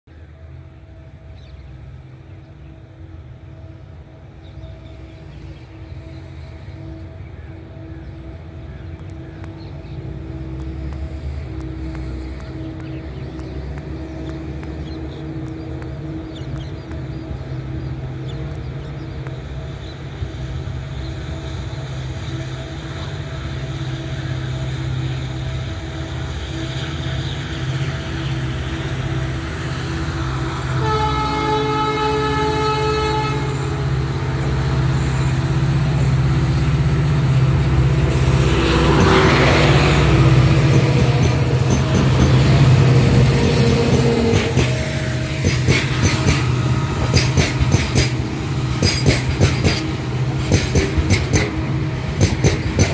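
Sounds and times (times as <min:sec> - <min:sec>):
diesel locomotive engine drone: 0:00.0 - 0:52.9
locomotives passing with a rush: 0:02.9 - 0:52.9
train horn: 0:20.2 - 0:37.1.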